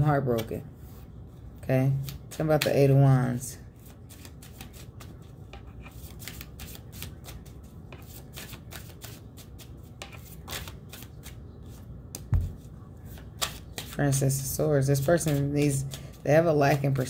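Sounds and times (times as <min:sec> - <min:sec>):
cards being shuffled: 0:02.0 - 0:02.8, 0:03.8 - 0:14.0, 0:15.0 - 0:17.0.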